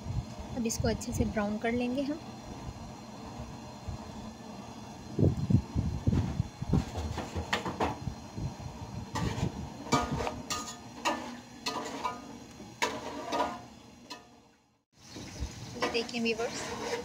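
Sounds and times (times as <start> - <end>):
metal spoon scraping a pot: 9.1 - 14.3, 15.8 - 17.0.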